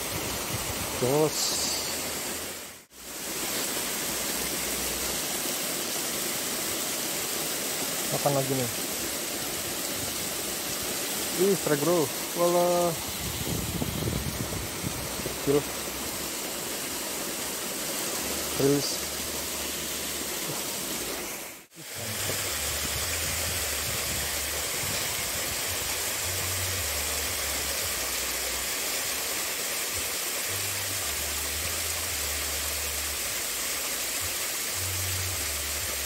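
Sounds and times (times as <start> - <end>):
water rushing over a weir: 0.0 - 36.0.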